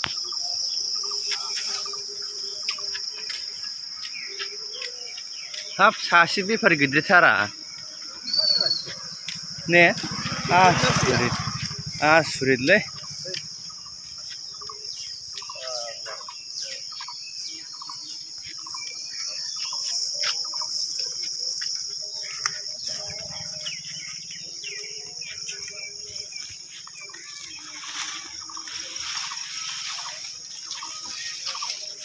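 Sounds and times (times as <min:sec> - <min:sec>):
insects chirring: 0:00.0 - 0:32.0
faint voices: 0:18.5 - 0:32.0.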